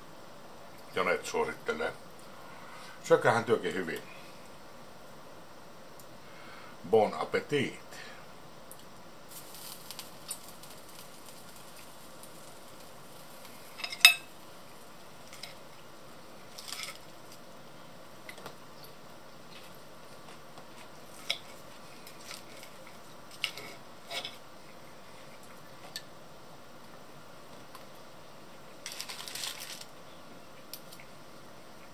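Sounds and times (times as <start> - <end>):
cutlery clinking and scraping on plate: 13.7 - 14.3.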